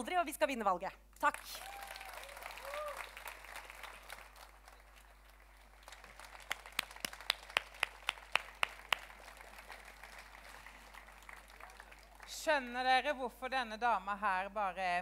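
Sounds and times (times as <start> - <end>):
audience applause: 1.4 - 12.3
sharp claps close by: 2.6 - 12.2.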